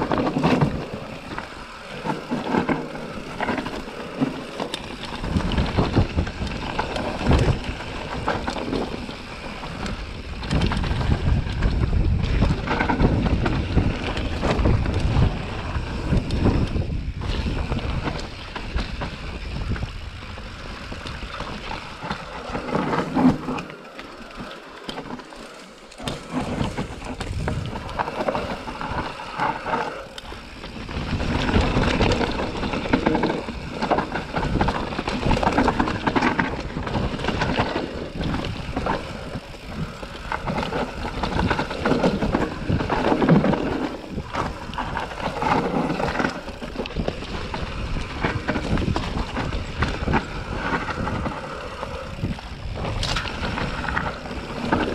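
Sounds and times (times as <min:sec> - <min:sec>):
bike rattles and knocks: 0:00.0 - 0:54.9
bike tyres rolling over dirt: 0:00.0 - 0:54.9
wind buffeting microphone: 0:03.2 - 0:23.2, 0:26.0 - 0:54.9.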